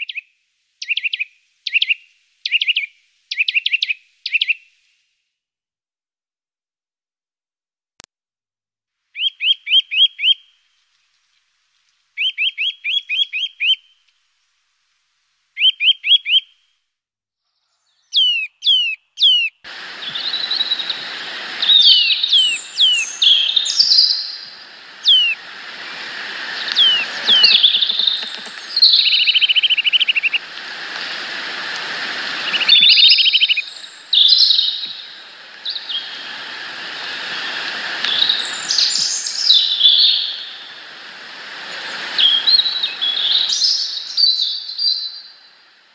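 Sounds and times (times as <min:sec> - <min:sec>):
songbirds chirping: 0:17.5 - 0:45.6
descending bird whistles: 0:17.8 - 0:25.4, 0:26.5 - 0:30.4, 0:32.4 - 0:36.2, 0:42.2 - 0:45.3
steady hiss: 0:19.7 - 0:45.9
buzzy bird trills: 0:20.0 - 0:31.2, 0:32.3 - 0:36.3.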